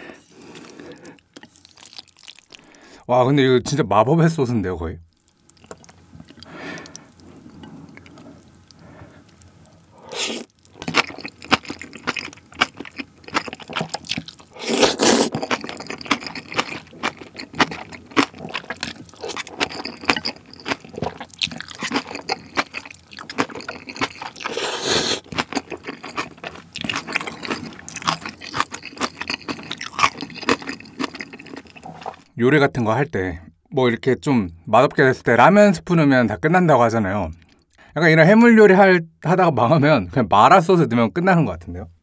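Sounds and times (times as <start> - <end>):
wet chewing: 0.2 - 2.7, 5.1 - 32.3
noodle slurping: 9.9 - 32.2.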